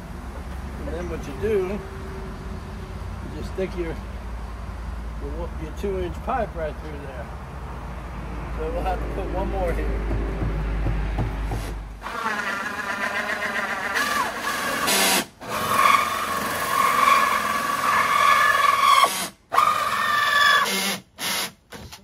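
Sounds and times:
power drill whining through plastic: 0:12.0 - 0:22.0.

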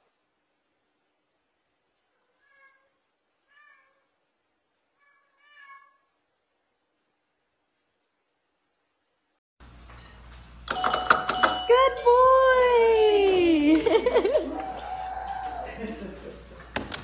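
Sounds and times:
cat meowing: 0:02.1 - 0:04.1, 0:05.0 - 0:06.1.

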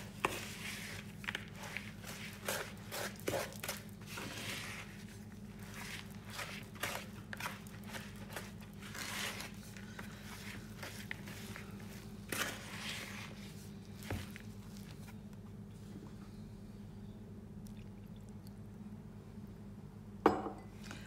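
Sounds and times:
wooden spoon scraping bowl: 0:00.0 - 0:15.0
low steady hum: 0:00.0 - 0:21.0.

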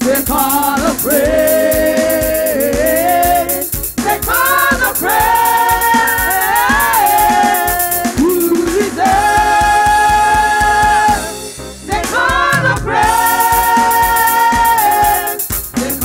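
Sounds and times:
steady beat: 0:00.0 - 0:16.0
women singing in harmony: 0:00.0 - 0:16.0.

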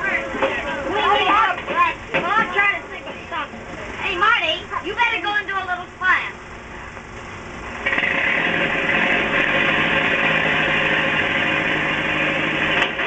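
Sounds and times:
car engine running loudly: 0:00.0 - 0:13.0
sharp crack: 0:07.8 - 0:13.0.

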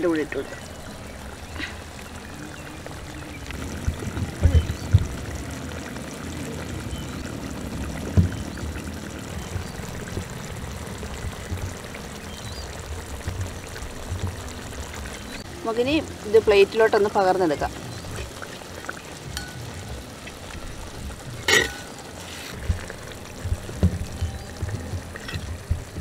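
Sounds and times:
curry bubbling in a pot: 0:00.0 - 0:26.0
low knocks: 0:08.0 - 0:08.8, 0:22.6 - 0:26.0.

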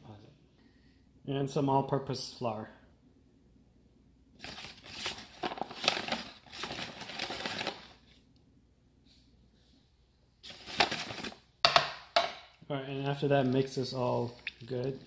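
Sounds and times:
paper bag rustling: 0:04.4 - 0:08.2, 0:10.4 - 0:11.5.

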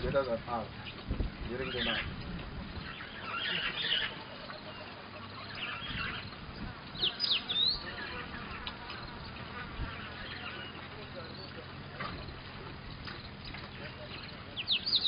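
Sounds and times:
flying insect buzzing: 0:02.0 - 0:13.4.

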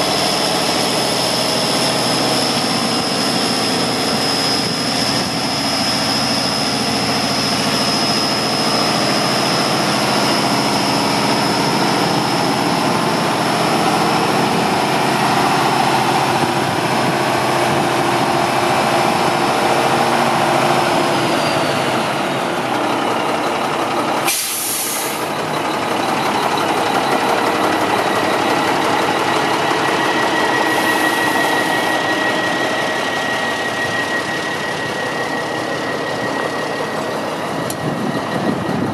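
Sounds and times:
diesel engine idling: 0:21.8 - 0:31.6
sharp hiss: 0:24.3 - 0:25.3.

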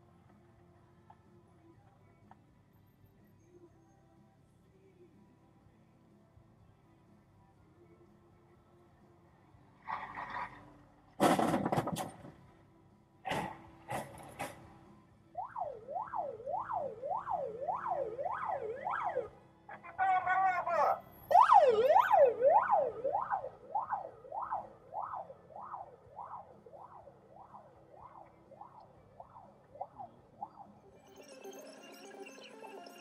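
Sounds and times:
police siren wailing: 0:15.4 - 0:30.7.

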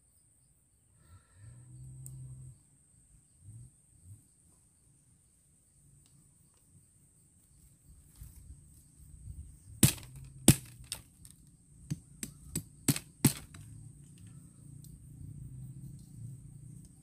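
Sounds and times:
dry sticks snapping: 0:09.8 - 0:13.6.

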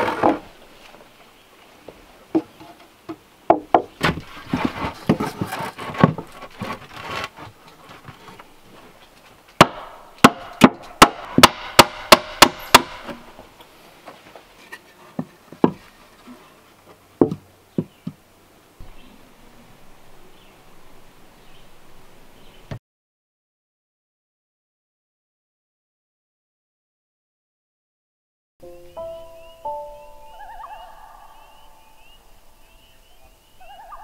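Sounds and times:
hammer striking wooden boards: 0:03.5 - 0:04.2, 0:09.6 - 0:13.3.

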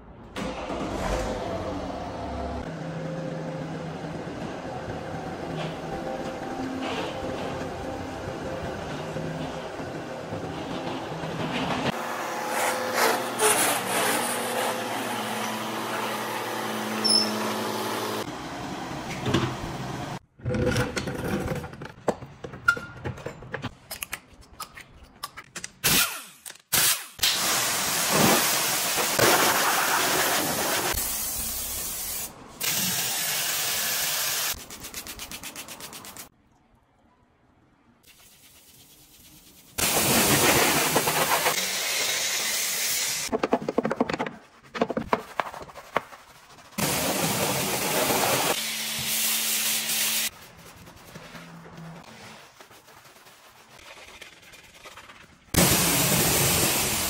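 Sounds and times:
scrubbing: 0:43.3 - 0:48.3, 0:49.9 - 0:55.5.

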